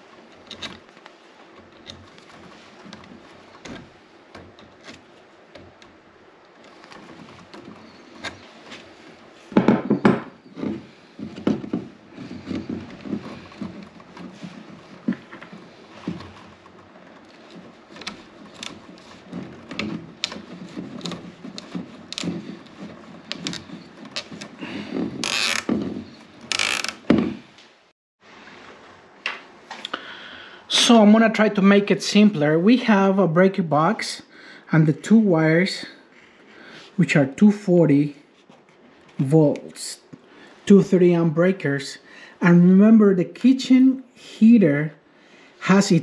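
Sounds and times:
rustling scrapes: 0.0 - 27.6
knock: 9.6 - 10.4
plastic clicks and rattles: 10.6 - 27.2
pliers twisting wires: 11.5 - 24.6, 25.2 - 27.1.

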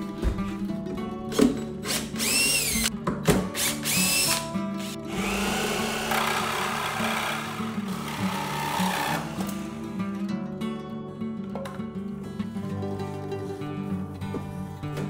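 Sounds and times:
background music: 0.0 - 15.0
cordless drill motor whine: 2.2 - 2.9, 3.6 - 9.8
reciprocating saw cutting wood: 5.1 - 9.9.

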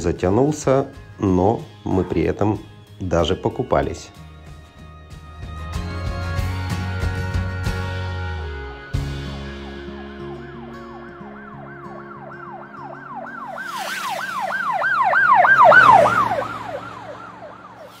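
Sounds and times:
police siren yelping: 9.3 - 18.0.

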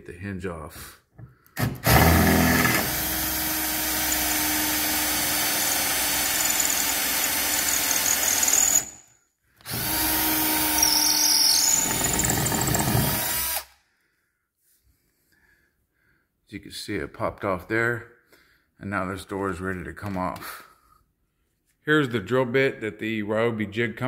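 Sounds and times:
drill running under load: 1.8 - 9.0, 9.7 - 13.8.

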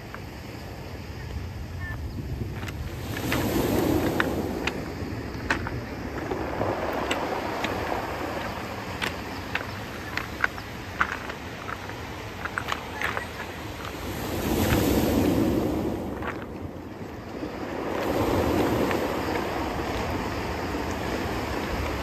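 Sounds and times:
small waves washing up cobblestones: 0.0 - 22.0
stones clacking together: 2.6 - 14.9.

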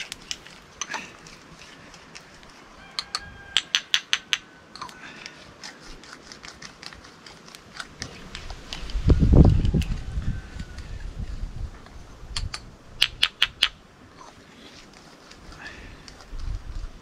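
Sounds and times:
dried pepper pods snapping: 0.0 - 9.0, 12.4 - 13.8
scattered clicks: 12.3 - 13.8.

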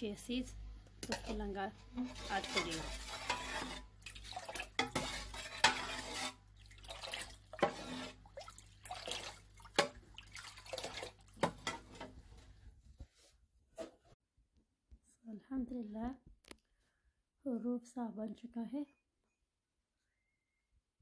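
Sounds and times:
liquid sloshing and splashing: 3.2 - 12.1.

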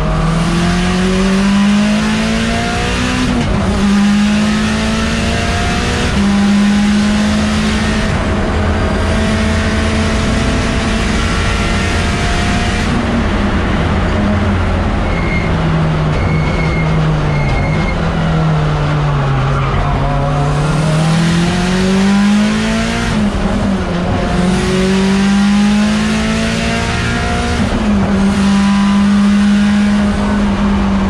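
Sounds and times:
race car engine accelerating: 0.0 - 31.0.

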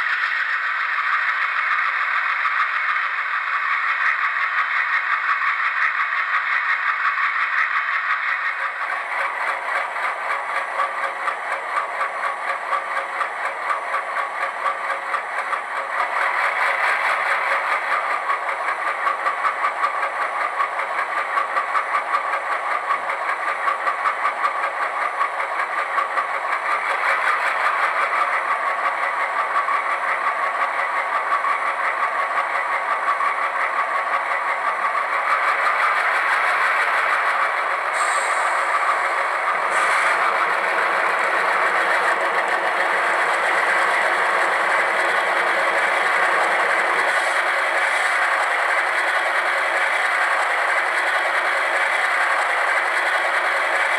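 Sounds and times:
diesel engine pulsing: 22.5 - 53.0.

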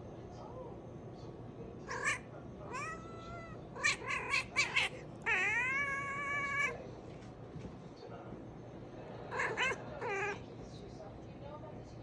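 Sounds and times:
cat meowing: 1.9 - 6.8, 9.3 - 10.4.

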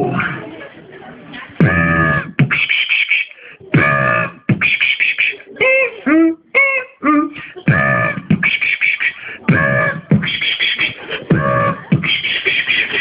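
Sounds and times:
mouth robot buzzes: 3.8 - 4.4.

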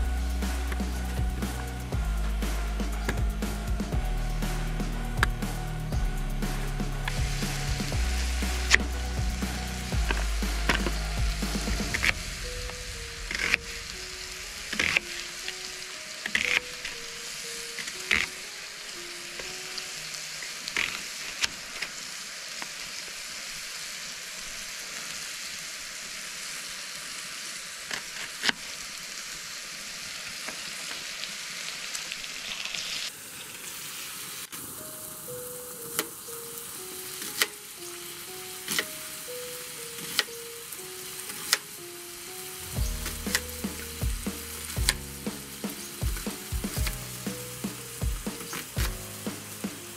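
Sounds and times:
food sizzling in a pan: 0.0 - 49.9
faint background music: 34.6 - 49.9.

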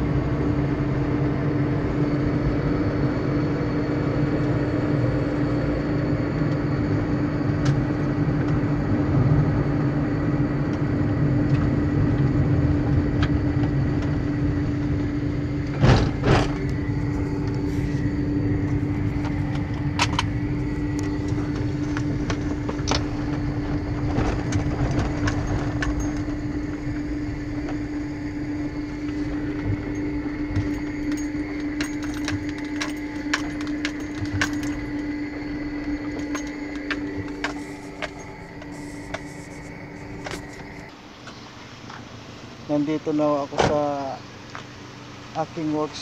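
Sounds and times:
car engine and road rumble: 0.0 - 46.0
constant cabin hum: 0.0 - 46.0
small clicks and rattles: 19.1 - 27.8, 29.0 - 40.9.

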